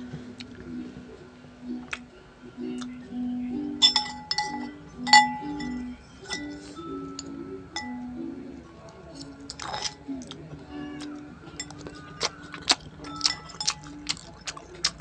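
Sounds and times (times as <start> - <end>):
background music: 0.0 - 15.0
cutlery clinking on ceramic plate: 3.8 - 8.1, 9.5 - 10.1, 11.6 - 14.4.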